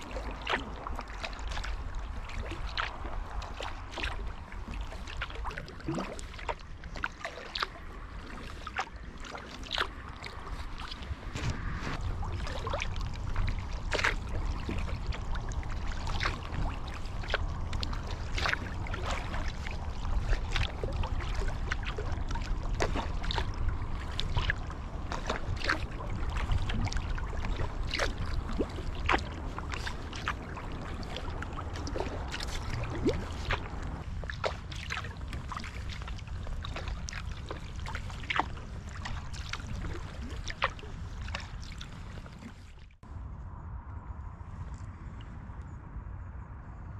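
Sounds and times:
low rumble: 0.0 - 46.9
water swishing along hull: 0.0 - 46.9
water dripping off paddle: 0.1 - 11.1, 12.0 - 42.6.

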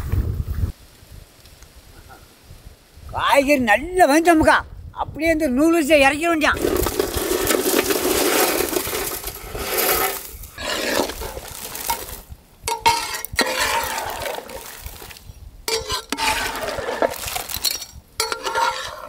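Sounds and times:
dry noodles crackling into a pot: 6.6 - 19.0.

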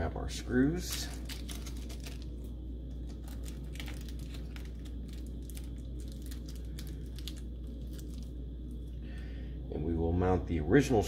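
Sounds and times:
steady low hum: 0.0 - 11.0
plastic bag crinkling: 0.5 - 8.9.

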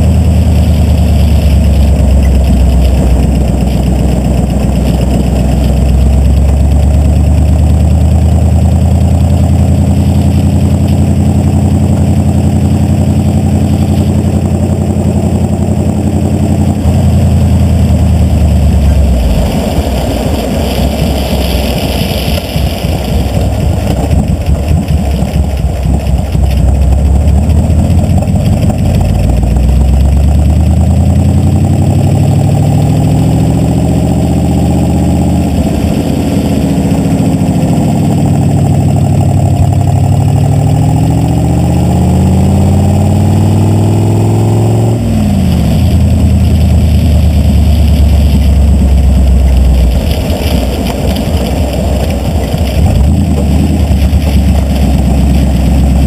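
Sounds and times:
car engine pulling: 0.0 - 56.0
tyres on wet pavement: 0.0 - 56.0.

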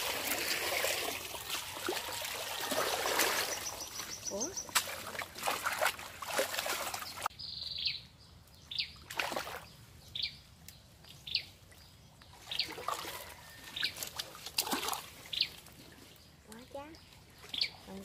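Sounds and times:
water splashing through basket: 0.0 - 7.3, 12.6 - 15.7
bird chirping: 3.2 - 4.8, 7.0 - 12.8, 15.3 - 18.0.

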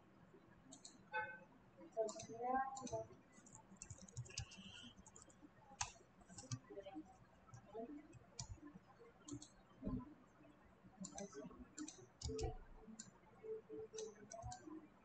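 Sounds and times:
keyboard typing clicks: 0.7 - 1.0, 2.0 - 6.6, 8.4 - 8.6, 9.3 - 10.0, 11.0 - 13.2, 13.8 - 14.7.

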